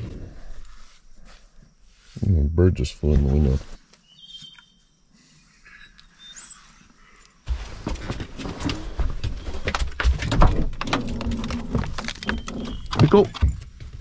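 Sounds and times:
faint high chirps: 0:04.0 - 0:07.4
clattering and knocks: 0:07.5 - 0:14.0.

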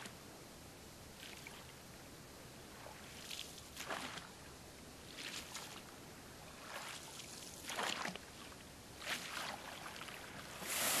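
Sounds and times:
canoe paddle splashing: 0:02.9 - 0:04.3, 0:05.1 - 0:05.8, 0:06.5 - 0:11.0.

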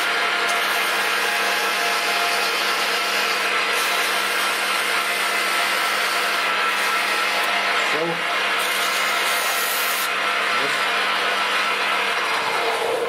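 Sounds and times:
metal lathe humming and whining: 0:00.0 - 0:13.0.

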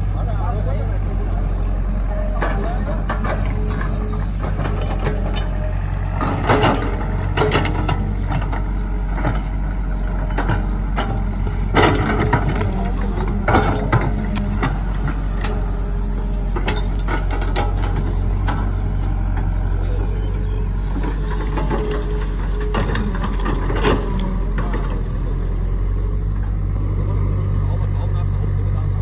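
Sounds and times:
excavator diesel engine running: 0:00.0 - 0:29.0
clanks and knocks of bucket: 0:06.2 - 0:08.7, 0:10.3 - 0:15.6.

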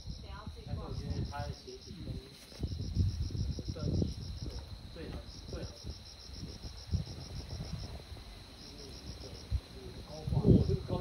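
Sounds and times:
insect chirping trill: 0:00.0 - 0:11.0
rustle: 0:00.7 - 0:11.0.

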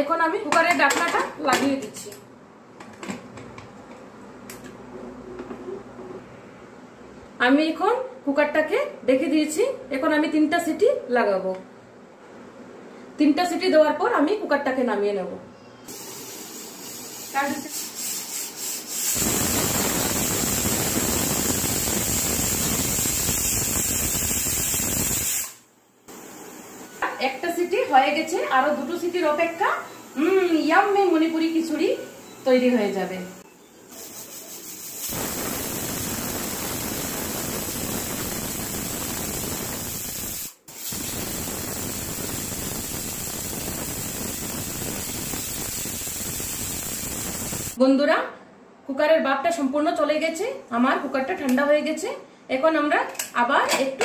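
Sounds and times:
pressure cooker whistling steam: 0:15.9 - 0:47.8.

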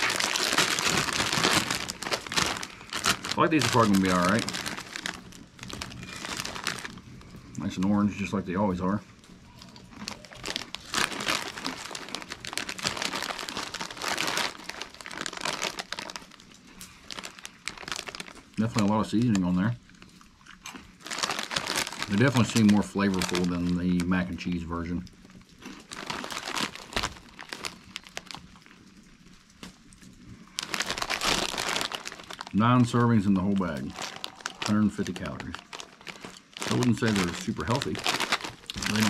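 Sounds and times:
foil chip bag crinkling: 0:00.0 - 0:39.0.

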